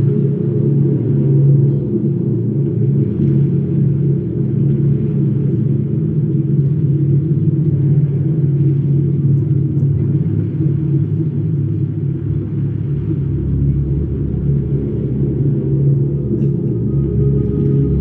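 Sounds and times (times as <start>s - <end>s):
bass-heavy concert music: 12.1s - 18.0s.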